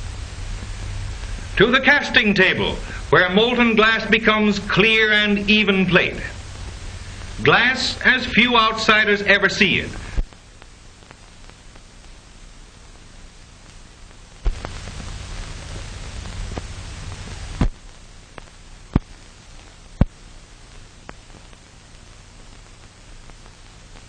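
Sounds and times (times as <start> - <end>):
film soundtrack hiss: 0.0 - 24.0
low hum: 0.0 - 24.0
sharp clicks and pops: 10.0 - 12.3, 13.6 - 24.0.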